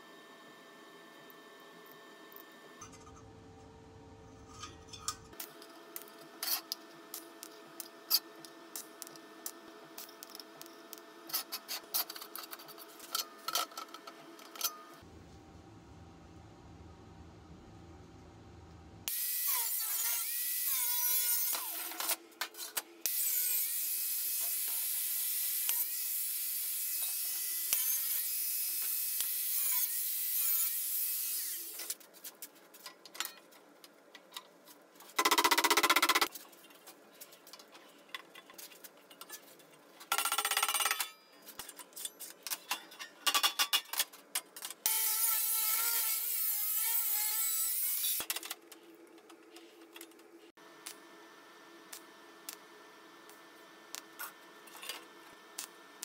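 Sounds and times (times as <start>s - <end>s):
angle grinder cutting steel: 23.1s - 31.8s, 44.9s - 48.3s.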